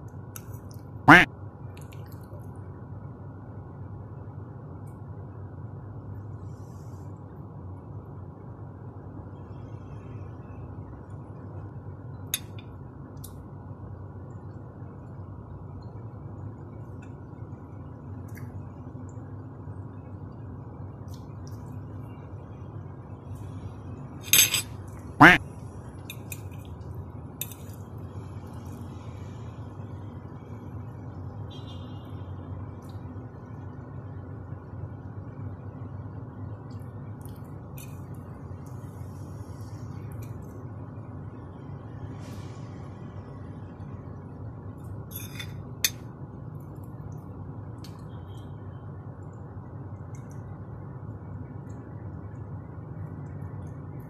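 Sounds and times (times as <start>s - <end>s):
steady low hum: 0.0s - 54.0s
metal fork clinking on plate: 24.2s - 24.7s, 45.1s - 46.0s.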